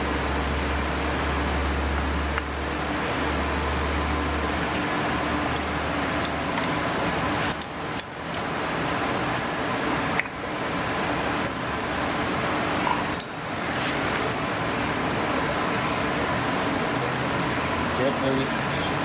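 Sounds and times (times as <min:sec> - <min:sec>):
screwdriver and bolts clinking: 0:13.2 - 0:13.6.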